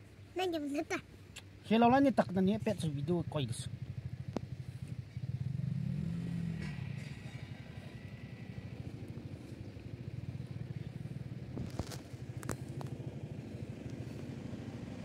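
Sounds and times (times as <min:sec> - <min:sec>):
small engine running: 0:03.8 - 0:15.0.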